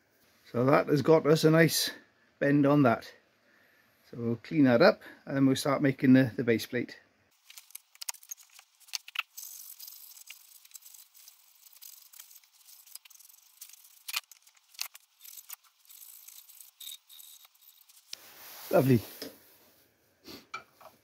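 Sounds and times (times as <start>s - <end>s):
abrasive cloth rubbing metal: 7.6s - 19.2s.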